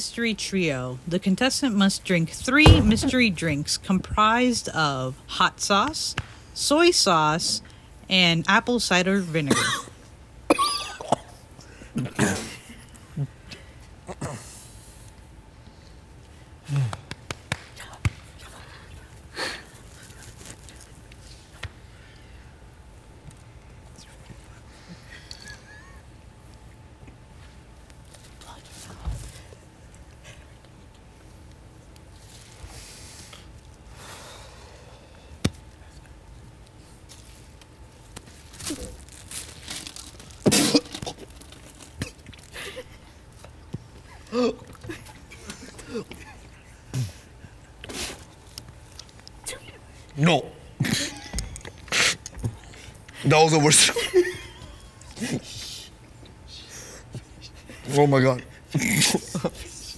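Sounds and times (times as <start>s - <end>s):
person coughing: 9.5s - 11.4s, 12.0s - 12.7s, 40.5s - 41.2s.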